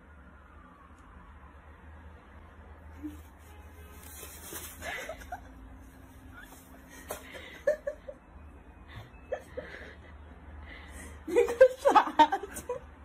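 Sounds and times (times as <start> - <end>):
soft human chuckling: 4.8 - 5.6.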